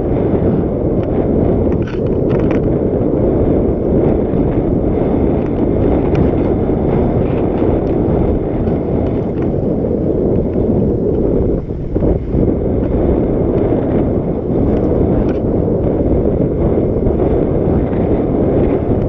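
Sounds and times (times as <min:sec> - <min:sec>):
bike tyres rumbling on dirt: 0:00.0 - 0:19.0
wind buffeting microphone: 0:00.0 - 0:19.0
faint clicks and rattles: 0:01.0 - 0:02.7.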